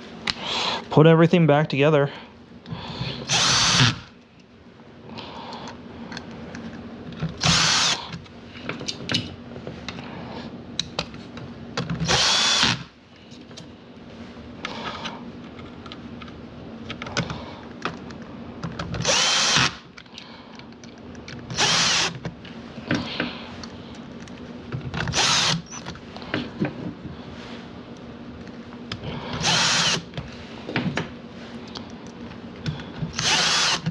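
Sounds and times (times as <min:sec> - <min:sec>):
power drill whining in bursts: 0:03.2 - 0:04.1, 0:07.4 - 0:08.1, 0:12.0 - 0:12.9, 0:19.0 - 0:19.8, 0:21.5 - 0:22.2, 0:25.1 - 0:25.8, 0:29.4 - 0:30.1, 0:33.1 - 0:33.9.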